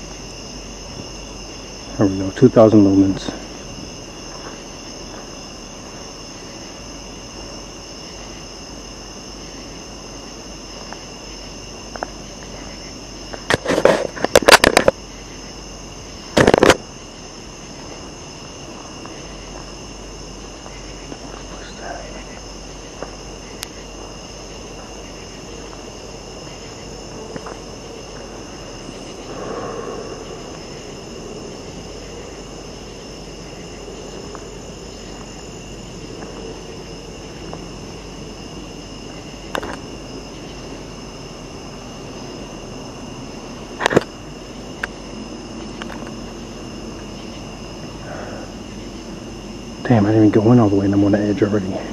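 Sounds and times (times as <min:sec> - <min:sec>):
crickets and insects trilling: 0:00.0 - 0:51.9
loud burst of noise: 0:28.3 - 0:33.5.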